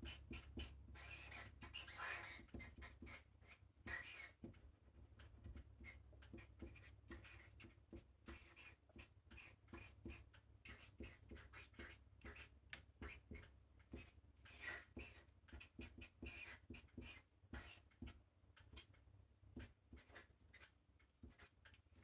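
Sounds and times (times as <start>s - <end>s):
marker scratching on paper: 0.0s - 4.6s, 5.2s - 22.0s.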